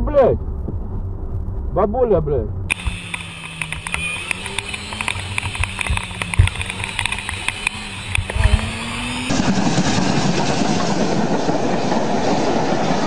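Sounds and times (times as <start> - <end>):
wind and road noise: 0.0 - 13.0
motorcycle engine running: 2.7 - 9.4.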